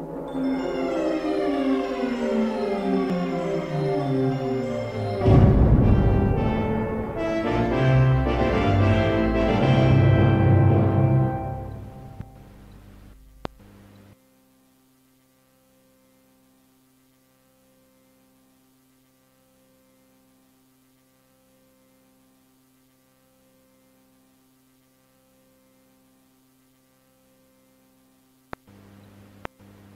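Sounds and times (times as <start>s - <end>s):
faint mains hum: 0.0s - 29.9s
tape hiss: 0.0s - 29.9s
low hum tone pulsing: 4.4s - 13.7s.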